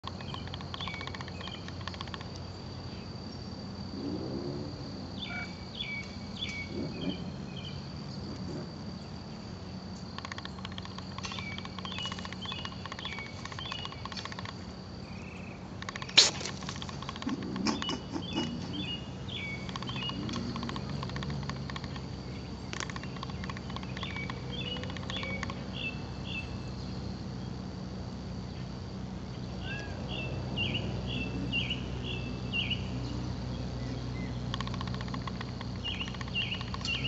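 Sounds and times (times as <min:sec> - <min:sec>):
moth wings fast ticking: 0:00.0 - 0:02.4, 0:10.0 - 0:14.8, 0:15.7 - 0:25.9, 0:30.5 - 0:37.0
high-pitched insect trill: 0:00.0 - 0:37.0
sharp click: 0:10.2 - 0:14.6, 0:15.8 - 0:18.5.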